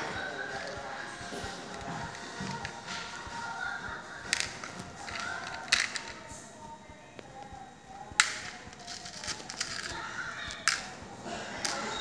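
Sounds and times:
fingers picking through plastic beads: 8.2 - 10.9.

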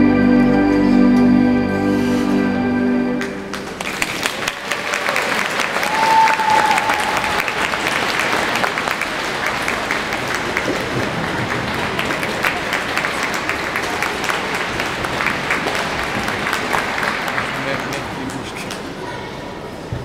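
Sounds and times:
audience applauding: 3.2 - 19.0.

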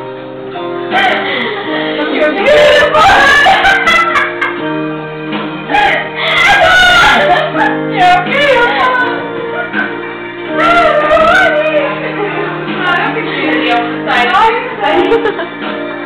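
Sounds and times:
music backing track: 0.0 - 16.0
women singing karaoke: 0.9 - 4.3, 5.7 - 9.3, 10.4 - 15.5.

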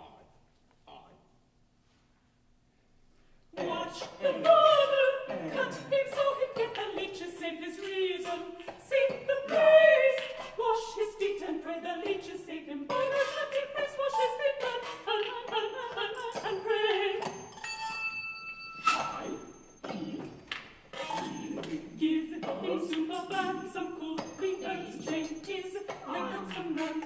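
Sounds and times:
women singing a cappella harmony: 3.6 - 17.5, 20.9 - 27.0.

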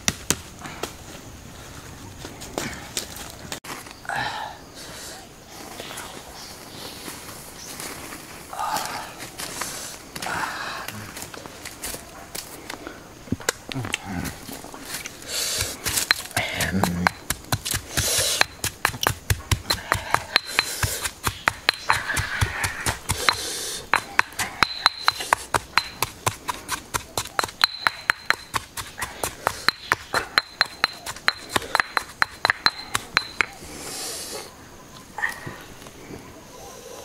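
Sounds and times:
stone pestle pounding in mortar: 15.6 - 33.6.

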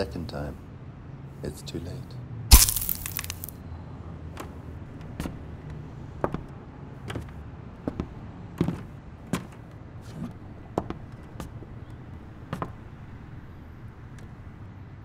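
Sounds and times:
footsteps on wooden floor: 5.0 - 6.5, 7.1 - 11.6.

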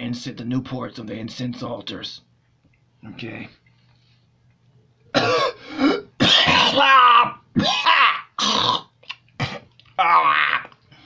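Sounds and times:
man coughing and hacking: 5.1 - 9.7.

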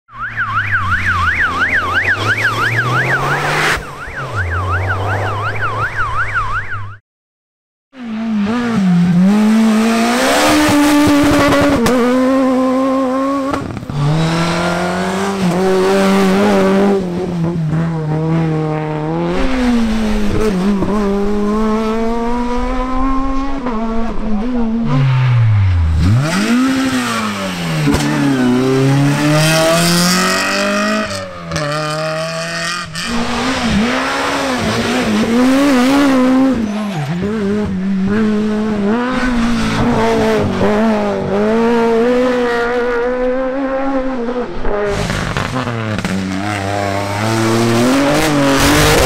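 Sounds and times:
fast up-and-down siren: 0.1 - 7.0
rally car engines revving hard: 1.2 - 5.4, 8.0 - 49.0.

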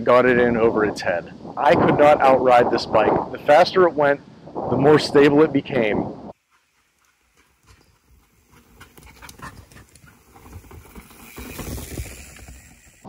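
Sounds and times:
mountain bike tyres over rocks: 6.3 - 13.0.

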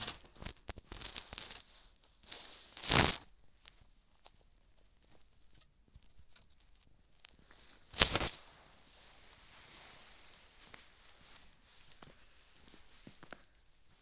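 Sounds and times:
faint crackles: 0.0 - 14.0
footsteps crunching in snow: 8.0 - 14.0.

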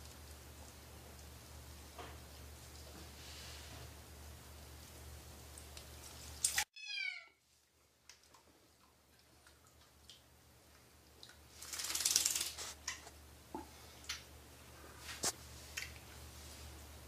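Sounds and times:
kitten meowing: 6.7 - 7.4
faint drips and taps: 8.0 - 11.5.

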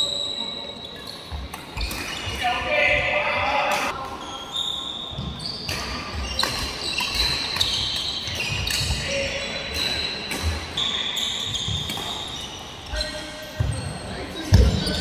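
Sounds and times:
shoes squeaking on wooden floor: 4.2 - 15.0
racket hitting shuttlecock: 5.7 - 9.0.

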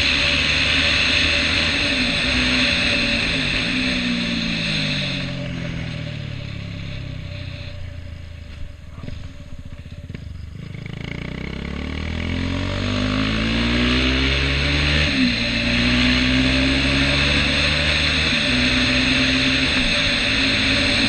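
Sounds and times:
motorcycle engine running: 0.0 - 21.0.

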